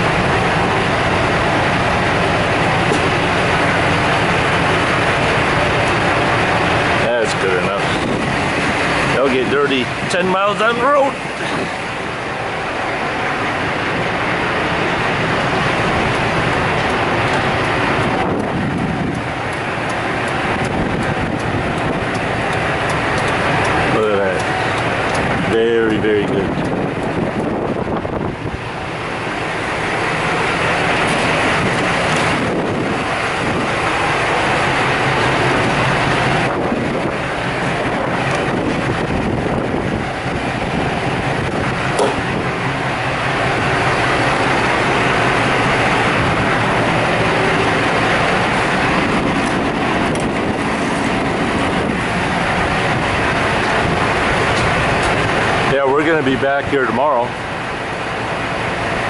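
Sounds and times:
continuous rushing noise: 0.0 - 59.0
diesel truck engine idling: 0.0 - 59.0.

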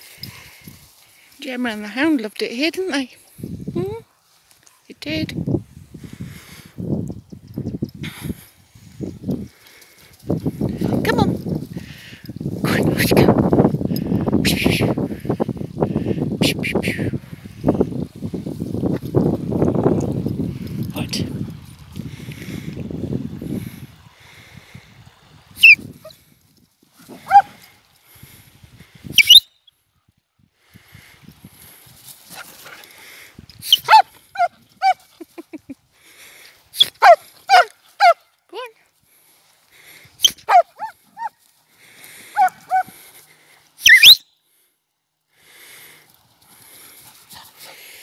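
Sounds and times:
dog barking and yelping: 27.1 - 27.6, 33.7 - 35.1, 36.8 - 38.2, 40.2 - 41.4, 42.4 - 42.9, 43.8 - 44.2.

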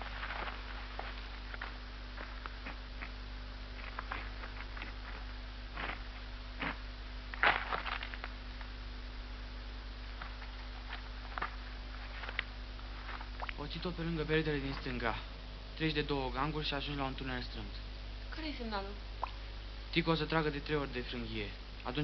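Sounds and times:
footsteps scuffing on rock: 0.0 - 3.2, 3.8 - 6.8, 7.4 - 8.3
low mains hum: 0.0 - 22.0.

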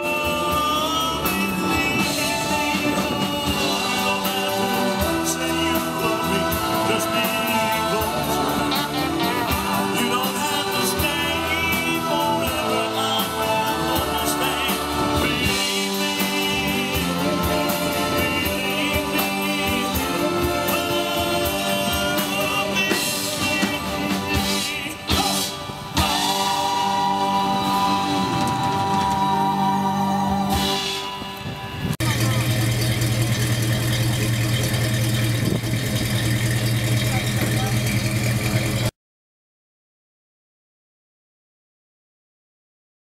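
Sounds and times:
person singing: 0.0 - 32.3
live band through speakers: 0.0 - 38.9.

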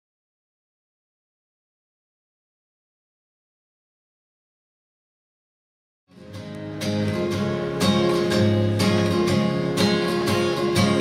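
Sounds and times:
acoustic guitar strumming: 6.1 - 11.0.

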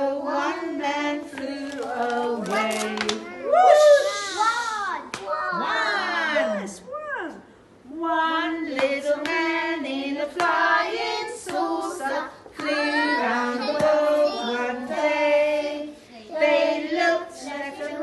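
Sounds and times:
woman singing: 0.0 - 3.3, 7.9 - 15.9
children singing: 0.0 - 3.4, 8.4 - 18.0.

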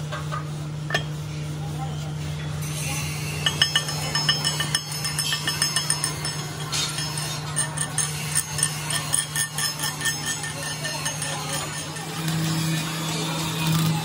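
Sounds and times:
steady low hum: 0.0 - 14.0
tool tapping steel gear: 3.4 - 14.0.

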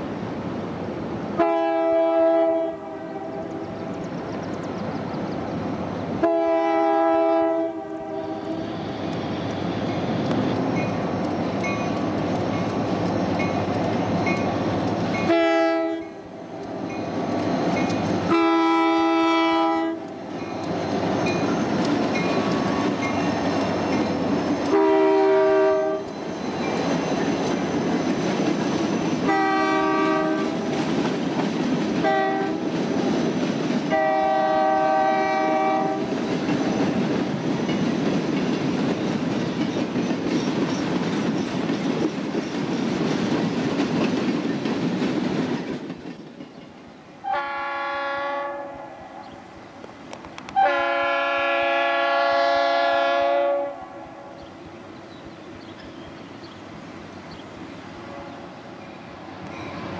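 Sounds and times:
diesel locomotive engines: 0.0 - 59.9
train air horn blasts: 1.4 - 3.8, 6.2 - 9.9, 15.2 - 16.4, 18.3 - 20.1, 24.7 - 26.1, 29.2 - 30.7, 32.0 - 32.6, 33.9 - 36.2, 47.2 - 49.4, 50.5 - 54.4, 57.9 - 58.7
crossing bell dinging: 9.8 - 15.4, 58.8 - 59.9.

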